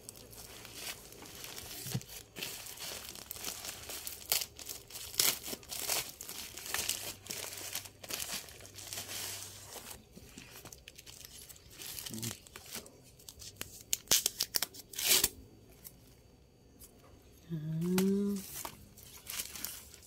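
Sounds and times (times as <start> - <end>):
plastic mailer crinkling: 0.0 - 15.3.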